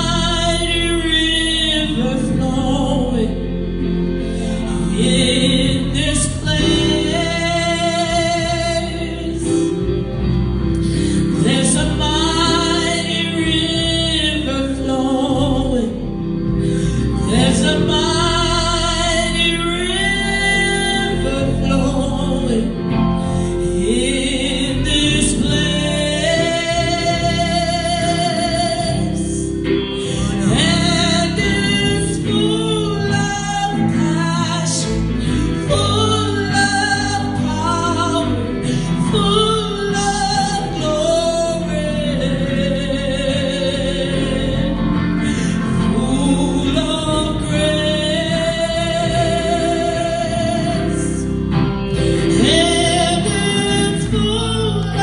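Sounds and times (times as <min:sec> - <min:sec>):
electric guitar: 0:00.0 - 0:55.0
woman singing gospel: 0:00.0 - 0:55.0.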